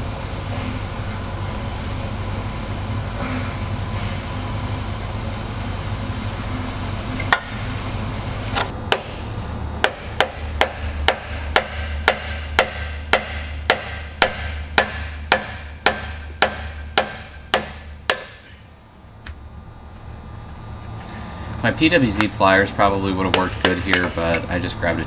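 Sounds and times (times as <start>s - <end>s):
chisel struck on metal: 9.8s - 18.6s, 23.2s - 24.5s.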